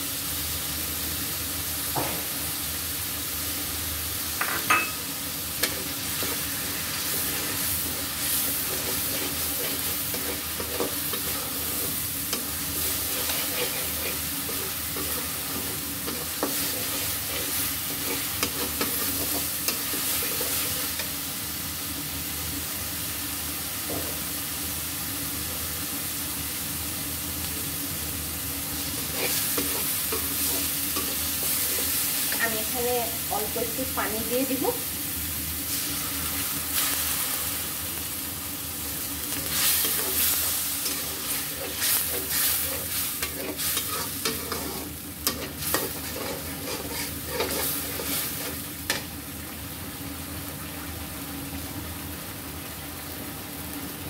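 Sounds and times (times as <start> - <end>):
spices sizzling in hot oil: 0.0 - 54.0
spatula clinking: 4.4 - 5.8
metal spatula scraping pan: 8.6 - 21.0, 39.5 - 48.6.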